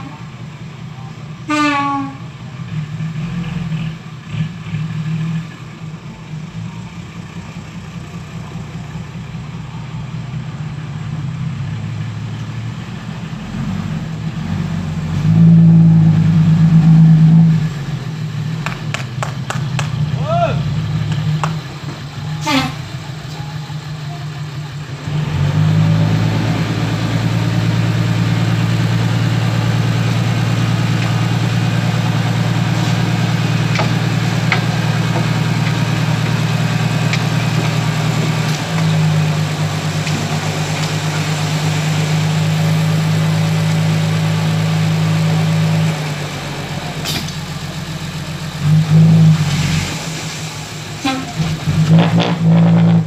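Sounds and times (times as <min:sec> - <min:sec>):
truck engine revving: 0:01.5 - 0:53.0
soil sliding out: 0:48.8 - 0:53.0.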